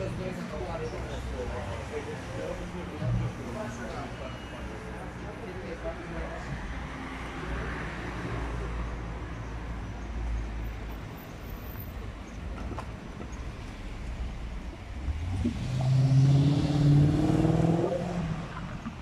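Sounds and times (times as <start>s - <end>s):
street traffic rumble: 0.0s - 19.0s
car accelerating past: 15.1s - 18.9s.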